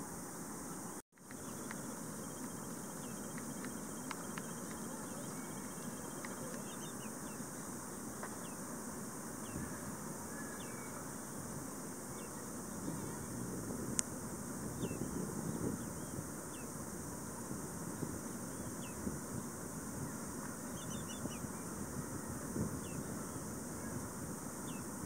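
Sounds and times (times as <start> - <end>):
high-pitched insect drone: 0.0 - 25.0
wind noise: 12.3 - 25.0.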